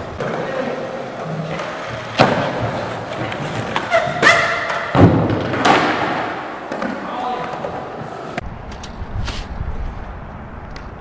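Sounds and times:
hard objects hitting concrete floor: 1.5 - 7.7.

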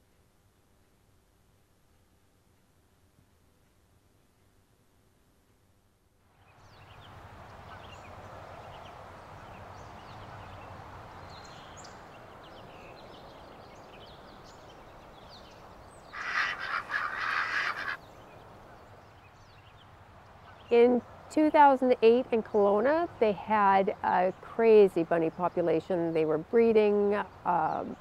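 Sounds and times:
faint songbird chirps: 6.4 - 21.2
turkey gobbling: 16.2 - 18.0.

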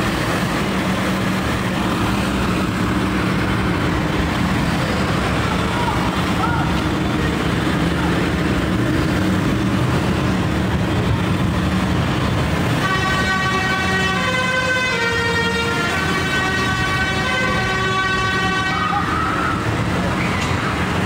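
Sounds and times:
vehicle horns sounding: 12.7 - 19.6.

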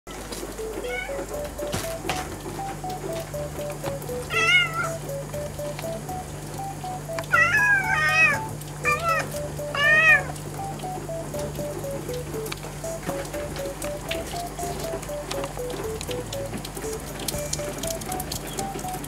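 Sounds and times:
cat meowing: 0.8 - 1.3, 4.3 - 5.0, 7.3 - 10.3.

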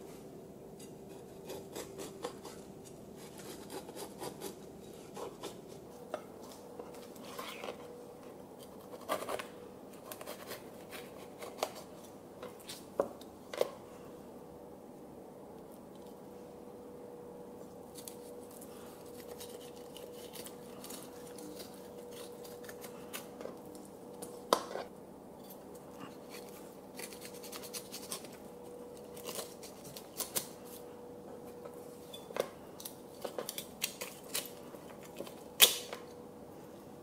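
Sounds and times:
faint steady hum: 0.0 - 37.0
knife scraping along fish bones: 0.9 - 5.6, 25.5 - 28.4.

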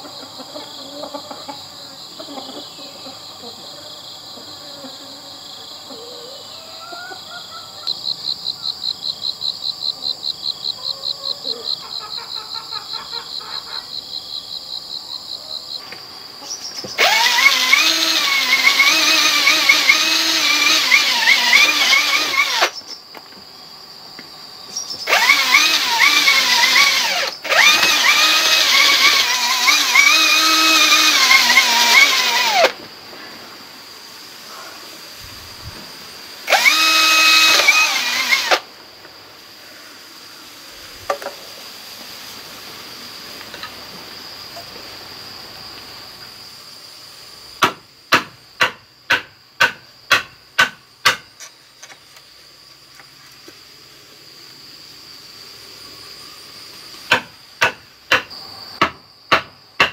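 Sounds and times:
insects chirring: 0.0 - 59.9
cordless drill boring into bamboo: 17.0 - 22.8, 25.0 - 32.8, 36.5 - 38.7.

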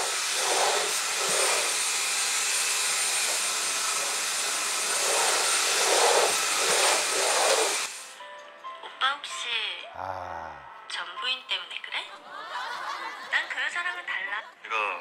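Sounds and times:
stick vacuum cleaner running: 0.0 - 8.2.

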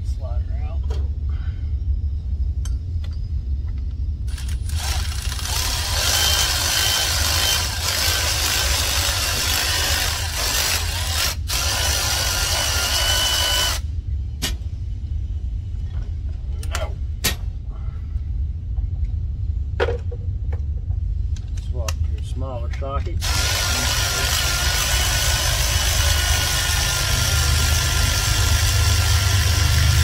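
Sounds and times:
electric ratchet running: 4.3 - 13.8, 23.2 - 30.0.

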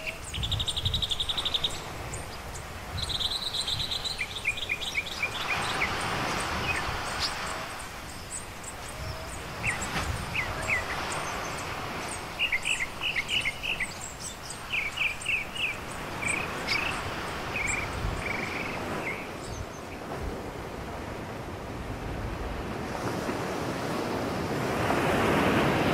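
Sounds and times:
birds chirping: 0.0 - 20.2
small waves washing onto sand: 0.0 - 25.9.

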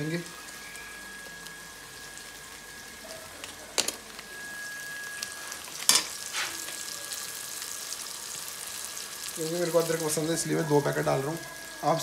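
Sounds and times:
masala sizzling in oil: 0.0 - 12.0.

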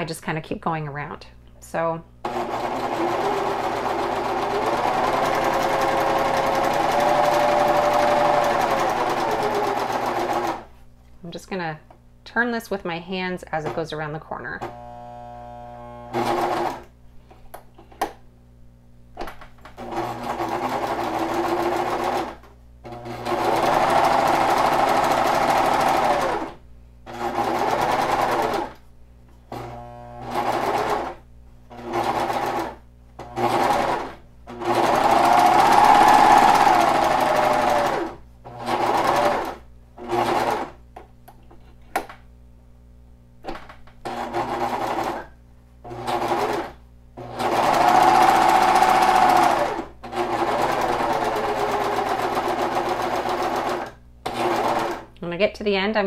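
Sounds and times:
serger sewing machine stitching: 2.2 - 10.7, 14.6 - 16.9, 19.8 - 28.8, 29.5 - 40.8, 44.0 - 55.1.

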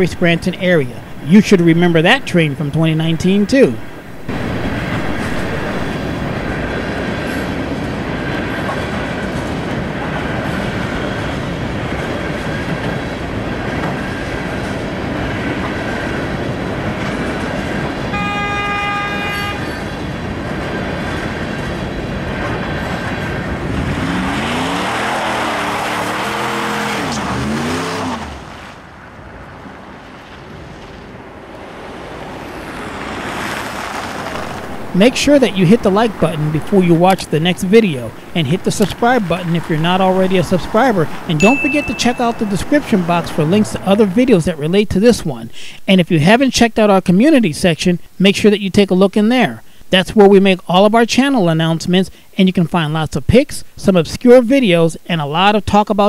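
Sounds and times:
train wheels rumbling on rail: 0.0 - 27.8, 28.9 - 45.6
train horn: 18.0 - 20.0
crossing bell ringing: 39.0 - 44.7.

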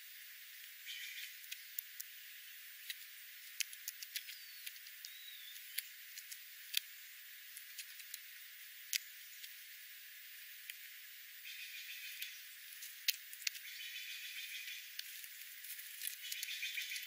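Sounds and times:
faint hiss: 0.0 - 17.0
beaks tapping seed and gravel: 0.6 - 2.2, 2.8 - 9.6, 11.5 - 17.0
small bird chirps: 0.8 - 2.1, 3.4 - 6.8, 11.4 - 17.0.

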